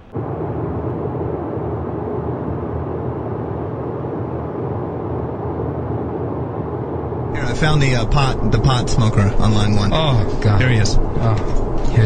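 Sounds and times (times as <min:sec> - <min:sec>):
car road and engine noise: 0:05.9 - 0:12.0.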